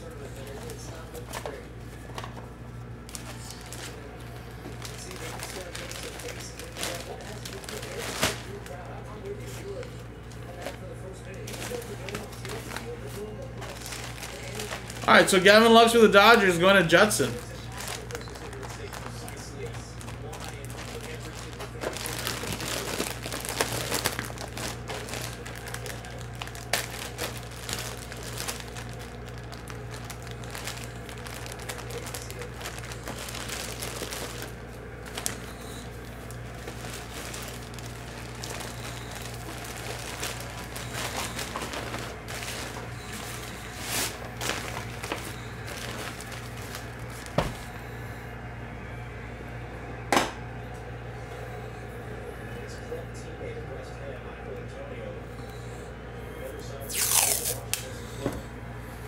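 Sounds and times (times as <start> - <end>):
steady low hum: 0.0 - 59.0
nylon bag rustling: 13.6 - 15.3, 17.3 - 47.4, 56.9 - 57.7.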